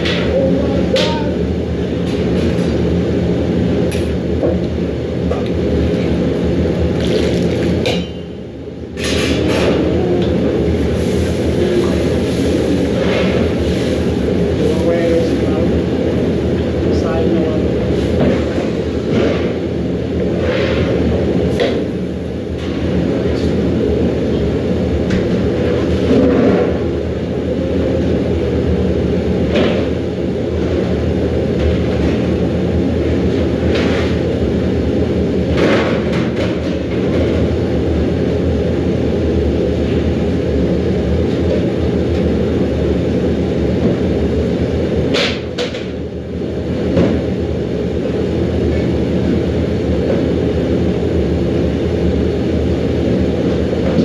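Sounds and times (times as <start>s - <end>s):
gas burners rumbling: 0.0s - 54.0s
pot boiling: 6.5s - 7.9s.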